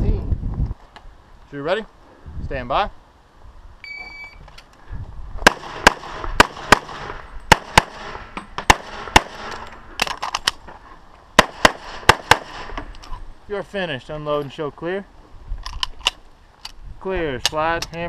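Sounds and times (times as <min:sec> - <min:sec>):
pistol shots: 0:05.4 - 0:09.6, 0:11.4 - 0:12.8.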